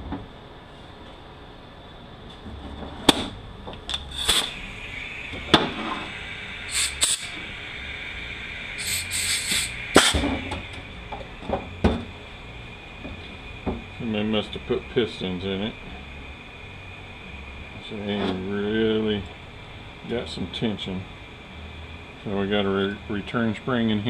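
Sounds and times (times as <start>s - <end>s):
compressed air hissing from blow gun: 3.9s - 11.4s.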